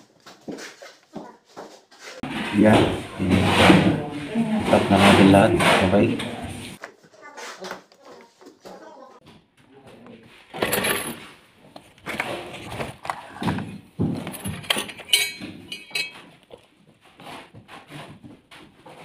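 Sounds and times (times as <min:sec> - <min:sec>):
plastic pipes clinking and scraping: 0:10.3 - 0:19.0.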